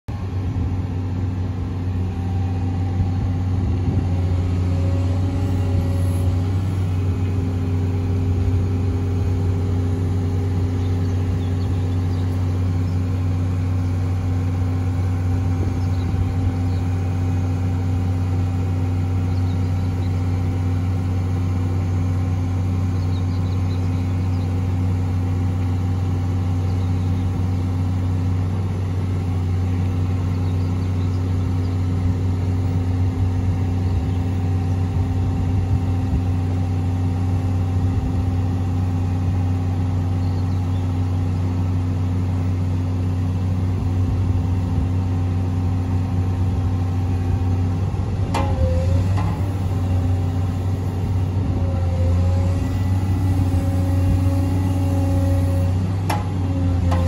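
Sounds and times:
diesel engine running steadily: 0.0 - 57.0
hydraulics raising cab: 45.6 - 57.0.

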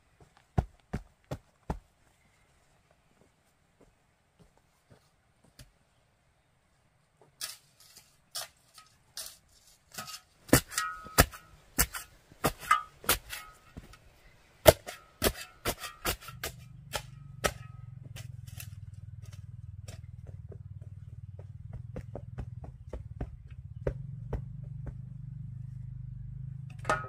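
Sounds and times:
shovel striking hard ground: 7.4 - 14.0, 14.6 - 20.1
low steady hum: 8.7 - 27.0.

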